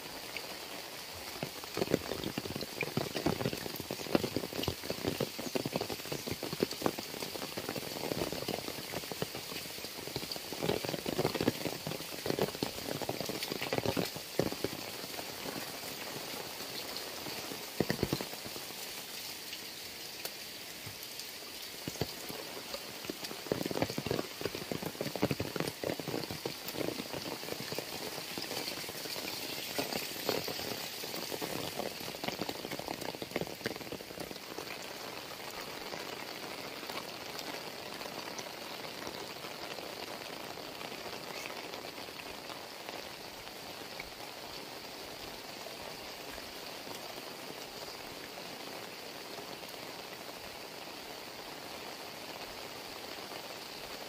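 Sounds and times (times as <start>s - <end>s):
heavy rain on concrete and roofs: 0.0s - 54.0s.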